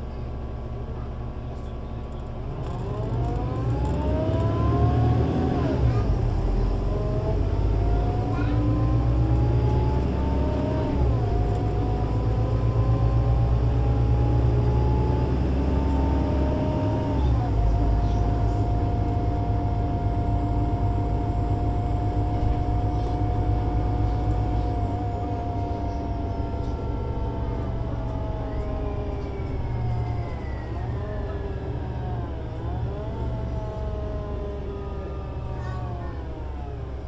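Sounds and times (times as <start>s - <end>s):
bus diesel engine accelerating: 0.0s - 37.0s.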